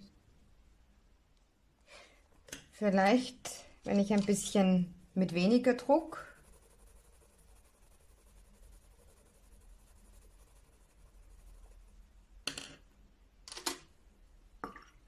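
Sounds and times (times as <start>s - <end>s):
pencil scratching on paper: 5.4s - 12.0s.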